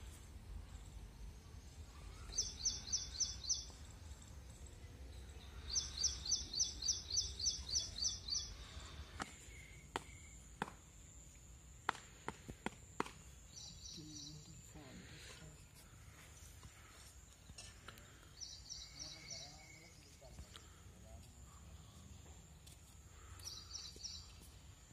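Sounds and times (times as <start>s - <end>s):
bird chirping: 1.6s - 10.4s, 13.4s - 14.9s, 17.2s - 20.8s, 23.2s - 24.6s.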